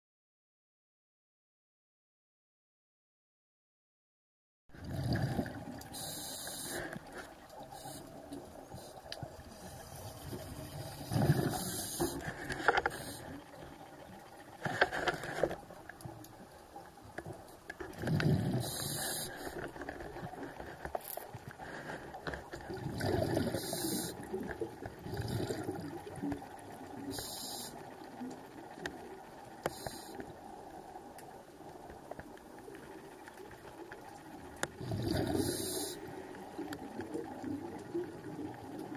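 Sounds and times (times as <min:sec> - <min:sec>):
exhaled bubbles gurgling: 0:04.7 - 0:14.8, 0:16.4 - 0:20.8, 0:22.5 - 0:31.8, 0:32.9 - 0:38.9
regulator inhale hiss: 0:05.9 - 0:13.4, 0:18.5 - 0:19.7, 0:23.3 - 0:24.2, 0:27.0 - 0:27.9, 0:29.6 - 0:30.4, 0:34.8 - 0:36.2.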